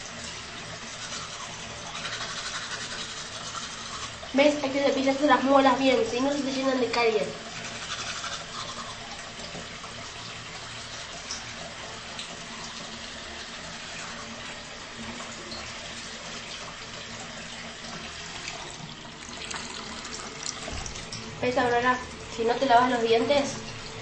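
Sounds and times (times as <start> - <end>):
tap running into sink: 17.8 - 21.3.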